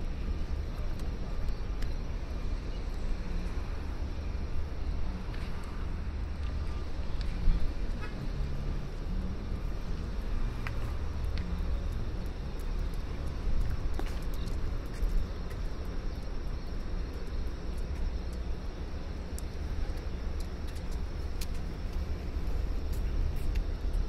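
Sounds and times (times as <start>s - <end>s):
distant traffic rumble: 0.0s - 24.0s
faint clicks: 10.0s - 16.3s.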